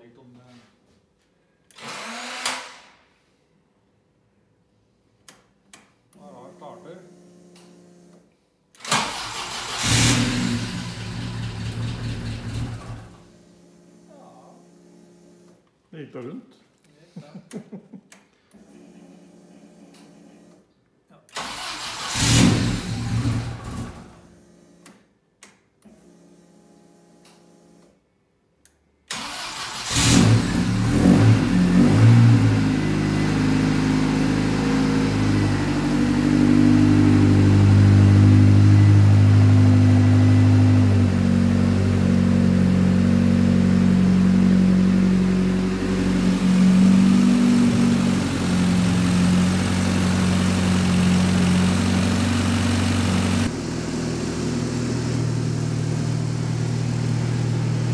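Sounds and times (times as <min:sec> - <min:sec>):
car engine starting and revving: 0:08.8 - 0:13.2, 0:21.4 - 0:24.2, 0:29.1 - 0:57.9.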